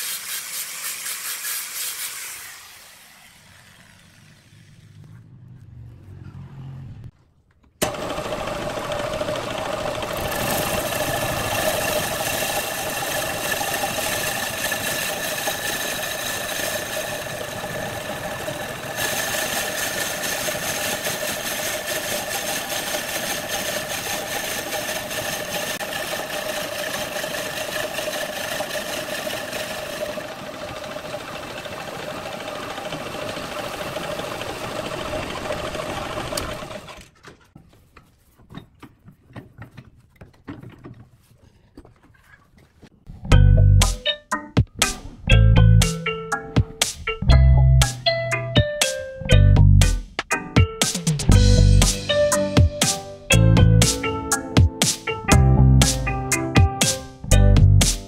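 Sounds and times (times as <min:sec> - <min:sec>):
hiss of cutting: 0:00.0 - 0:04.9, 0:10.3 - 0:25.8
wood lathe whine: 0:01.8 - 0:04.9, 0:07.8 - 0:37.1.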